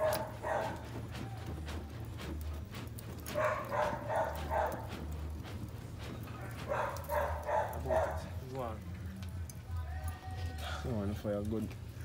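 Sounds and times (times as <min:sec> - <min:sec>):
dog barking: 0:00.0 - 0:00.8, 0:03.3 - 0:04.9, 0:06.6 - 0:08.3.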